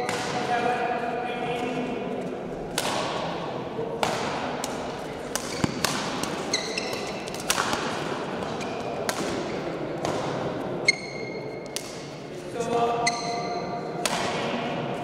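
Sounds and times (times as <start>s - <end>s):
rackets hitting shuttlecocks: 0.0s - 0.5s, 2.7s - 12.3s, 13.1s - 14.8s
shoes squeaking on court floor: 5.4s - 7.6s, 8.4s - 9.7s, 10.8s - 11.8s, 12.6s - 13.7s.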